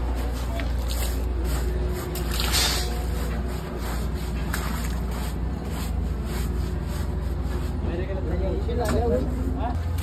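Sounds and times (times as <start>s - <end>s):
brush scrubbing wet cement: 0.0s - 9.8s
water splashing and trickling: 0.5s - 5.9s.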